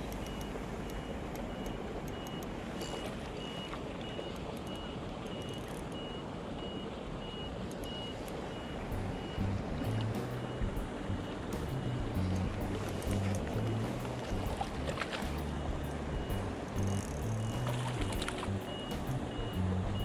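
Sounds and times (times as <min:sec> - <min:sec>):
short high electronic beeps: 0:15.5 - 0:20.0.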